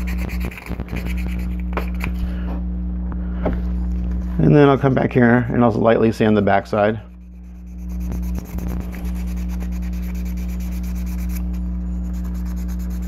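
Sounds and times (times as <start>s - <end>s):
wet sandpaper rubbing: 0.0s - 2.1s, 6.0s - 13.0s
steady low hum: 0.0s - 13.0s.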